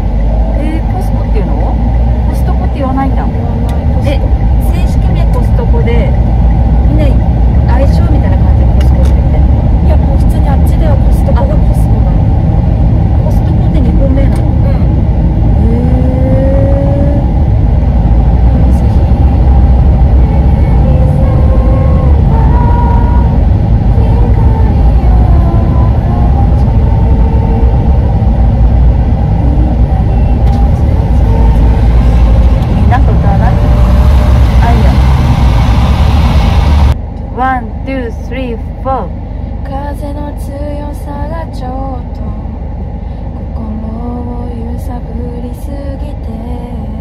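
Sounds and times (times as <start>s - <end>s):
car cabin road and engine rumble: 0.0s - 47.0s
woman singing: 15.5s - 17.3s, 20.1s - 28.1s, 37.4s - 42.6s, 43.4s - 47.0s.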